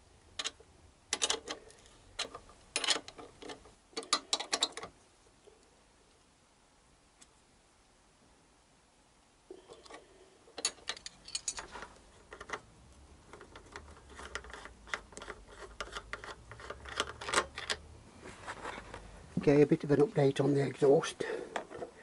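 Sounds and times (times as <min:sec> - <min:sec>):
metal tools clinking: 0:10.6 - 0:11.8.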